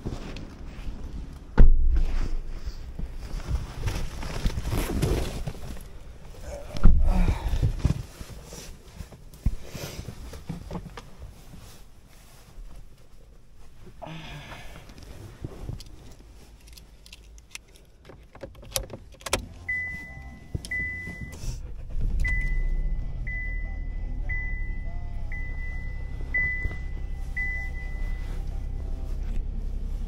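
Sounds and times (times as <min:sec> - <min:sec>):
car engine starting and idling: 0:13.5 - 0:30.0
dashboard warning chime beeping: 0:19.4 - 0:29.3.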